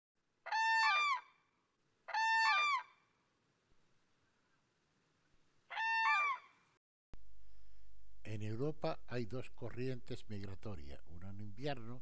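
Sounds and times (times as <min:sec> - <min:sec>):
crane trumpeting calls: 0:00.5 - 0:01.4, 0:02.1 - 0:03.0.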